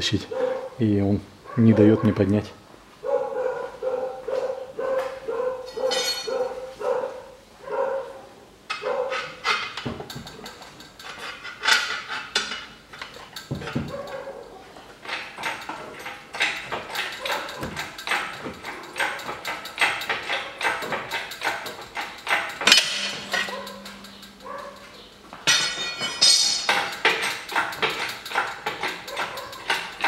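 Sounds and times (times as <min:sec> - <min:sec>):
chain links clinking: 0:05.7 - 0:06.6, 0:09.6 - 0:30.0
chain hoist clicking: 0:09.1 - 0:30.0.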